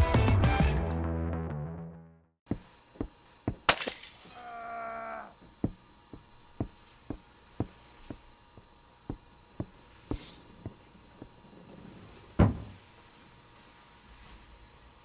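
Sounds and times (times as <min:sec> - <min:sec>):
heavy thud: 0:12.4 - 0:12.8.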